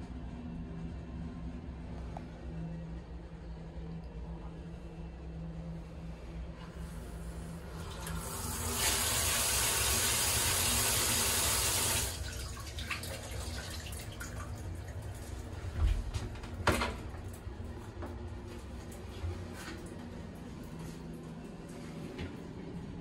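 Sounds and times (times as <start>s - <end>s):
water dripping: 12.0s - 15.5s.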